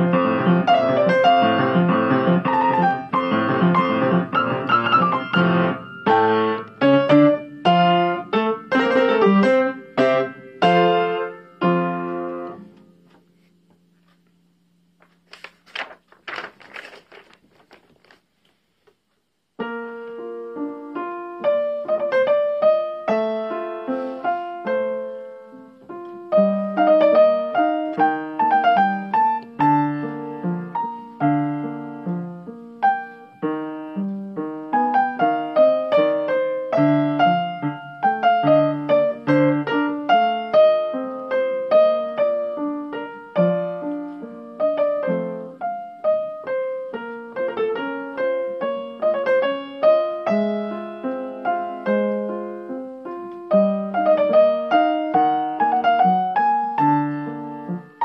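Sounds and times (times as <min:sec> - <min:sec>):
piano playing chords: 0:00.0 - 0:15.0, 0:19.6 - 0:58.0
paper page rustling: 0:13.0 - 0:19.2.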